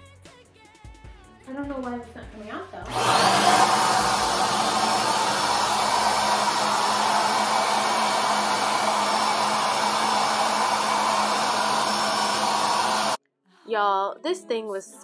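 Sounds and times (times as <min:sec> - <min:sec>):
paint sprayer motor whirring: 0:02.9 - 0:13.2.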